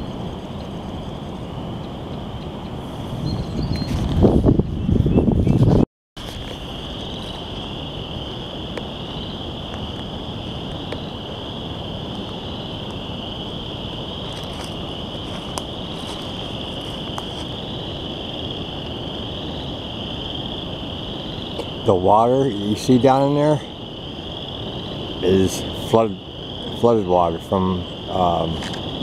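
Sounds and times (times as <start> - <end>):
chorus of frogs calling: 0.0 - 4.0, 6.2 - 29.0
wind rushing: 0.0 - 26.9.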